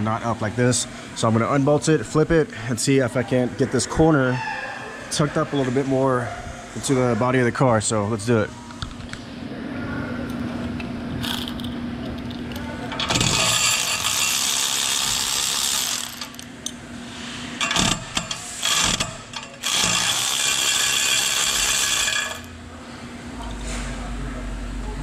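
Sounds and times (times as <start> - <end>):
electric ratchet spinning nuts: 13.0 - 16.5, 17.6 - 22.5.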